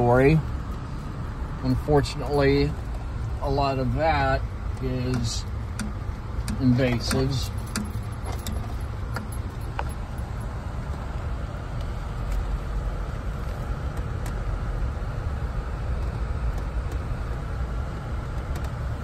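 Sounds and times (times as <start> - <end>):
vehicle engine and tyres rumbling: 0.0 - 19.0
faint light rattles: 6.5 - 10.5.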